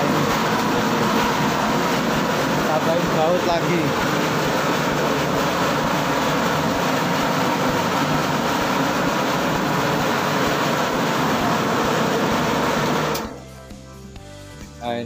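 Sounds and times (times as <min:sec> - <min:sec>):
dough mixer hum and clatter: 0:00.0 - 0:13.4.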